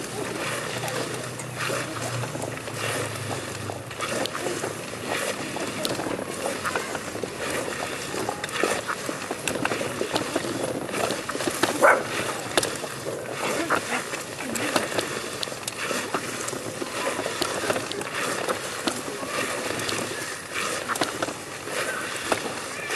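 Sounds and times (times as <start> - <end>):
clothes scraping on stone paving: 0.0 - 22.9.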